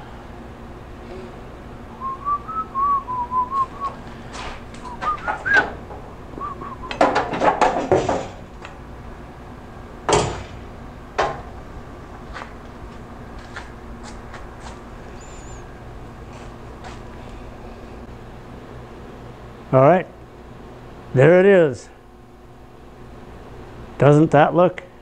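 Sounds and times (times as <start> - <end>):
man whistling a tune: 1.9 - 4.0, 4.8 - 5.8, 6.4 - 7.0
steel tubes clanking and knocking: 6.9 - 8.4.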